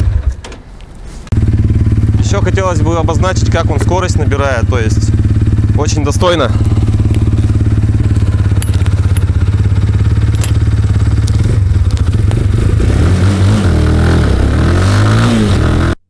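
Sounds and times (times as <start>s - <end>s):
motorcycle engine idling: 1.3s - 13.6s
motorcycle accelerating away: 1.4s - 16.0s.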